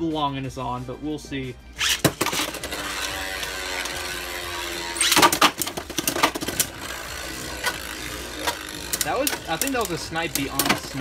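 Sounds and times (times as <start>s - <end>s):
spinning top whirring: 1.8s - 11.0s.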